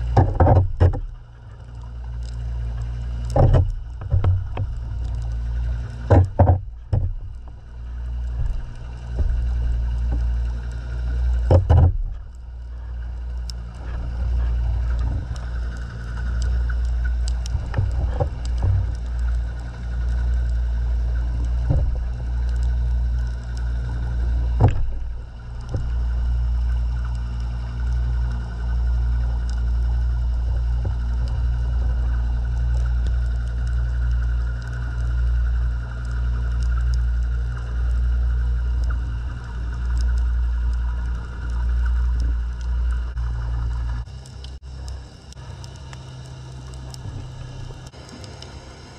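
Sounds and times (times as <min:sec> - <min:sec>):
faint steady hum: 0:00.0 - 0:48.9
muffled underwater rumble: 0:00.0 - 0:48.9
sharp knocks: 0:06.1 - 0:07.5, 0:11.5 - 0:12.1.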